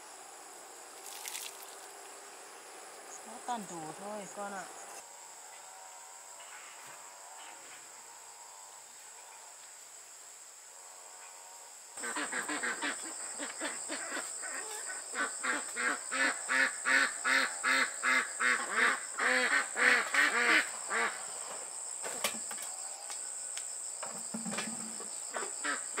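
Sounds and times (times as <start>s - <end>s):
high insect drone: 0.0s - 26.0s
waterfowl honking: 12.0s - 15.6s.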